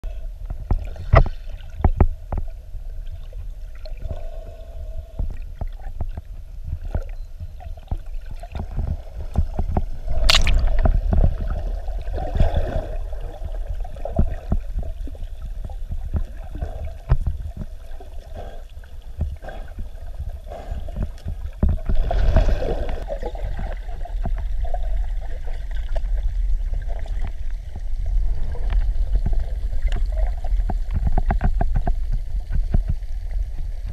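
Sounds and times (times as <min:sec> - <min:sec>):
low underwater rumble: 0:00.0 - 0:33.9
bubbles gurgling underwater: 0:03.1 - 0:33.9.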